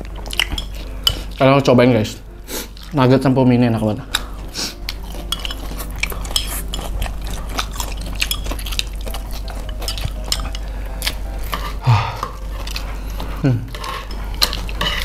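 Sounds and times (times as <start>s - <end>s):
noodles slurped and chewed: 2.6s - 3.0s, 4.1s - 15.0s
chopsticks clicking on plates: 4.1s - 15.0s.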